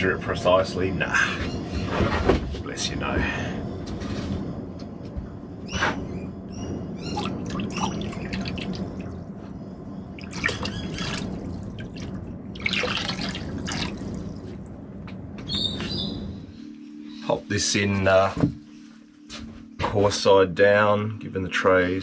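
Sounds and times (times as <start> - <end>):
liquid trickling into water: 7.1 - 9.2, 10.2 - 14.7.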